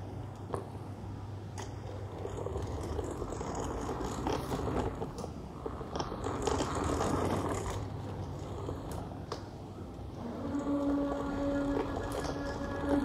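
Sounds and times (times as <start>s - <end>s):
plastic wheels rattling and scraping: 1.6s - 13.0s
toy truck motor whirring: 10.2s - 13.0s.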